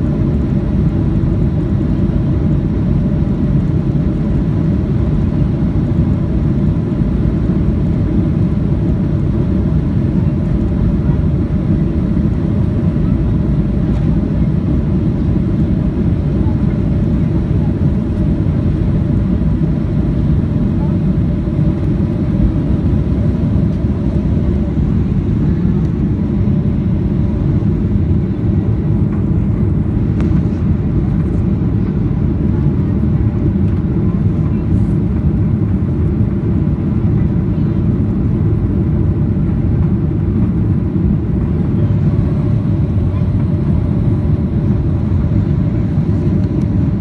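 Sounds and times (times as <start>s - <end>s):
jet engines roaring in cabin: 0.0s - 47.0s.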